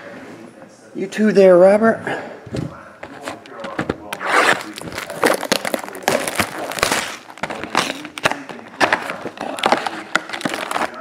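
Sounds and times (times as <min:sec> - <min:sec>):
plastic wrap crinkling and tearing: 0:03.4 - 0:11.0.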